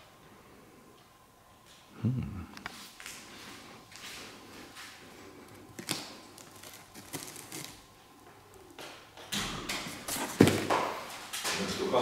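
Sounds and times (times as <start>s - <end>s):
rustling handling noise: 2.7s - 8.8s, 9.8s - 11.4s.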